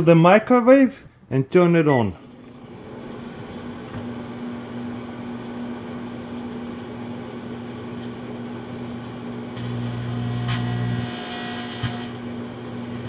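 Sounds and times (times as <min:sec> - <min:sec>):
microwave fan whirring: 0:01.9 - 0:13.0
microwave oven humming: 0:02.0 - 0:13.0.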